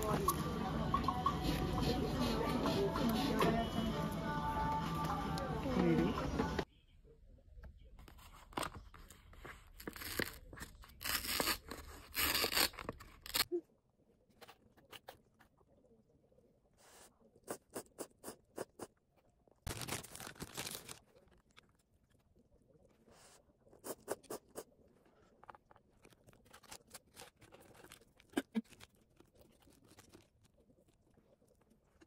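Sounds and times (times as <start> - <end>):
plastic and paper crinkling: 19.6 - 22.2, 25.1 - 32.0.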